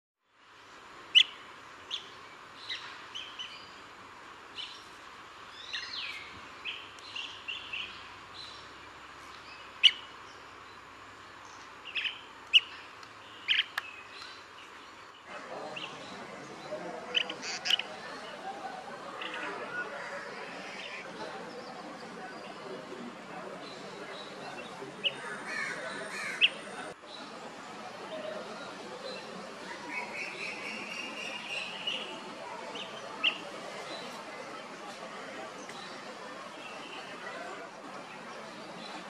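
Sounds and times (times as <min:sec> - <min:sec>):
background hiss: 0:00.3 - 0:39.0
bird chirping calls: 0:11.4 - 0:22.8, 0:23.6 - 0:27.0, 0:29.0 - 0:34.2.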